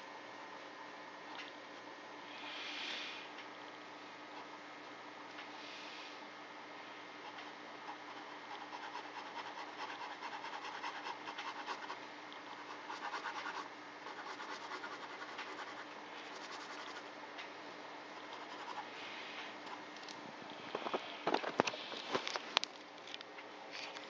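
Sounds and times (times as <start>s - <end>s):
pen scratching on paper: 12.6s - 17.0s.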